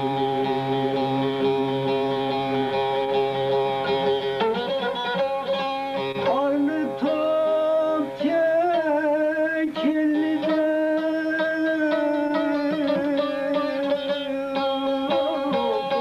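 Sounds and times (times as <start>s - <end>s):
folk music on plucked strings: 0.0s - 16.0s.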